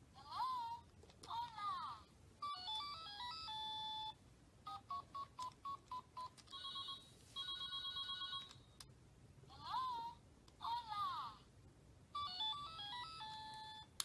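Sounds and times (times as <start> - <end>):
toy phone beeps: 2.4 - 8.7, 12.2 - 13.9.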